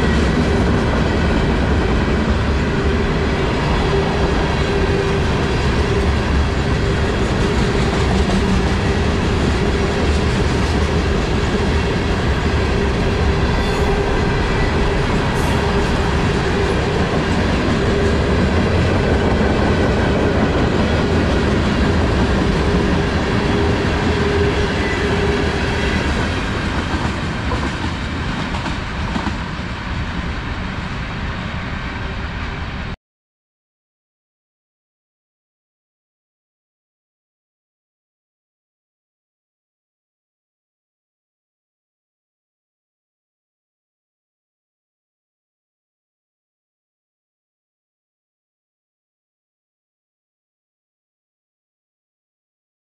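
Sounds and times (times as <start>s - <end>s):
steel wheels rumbling on rail: 0.0s - 33.0s
clickety-clack over rail joints: 3.8s - 13.1s, 15.2s - 30.0s.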